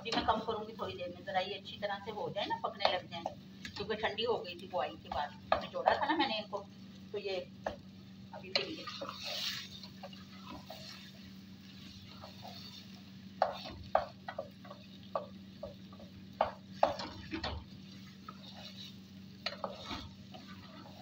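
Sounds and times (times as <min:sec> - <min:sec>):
wooden spoon scraping a pot: 0:08.5 - 0:21.0.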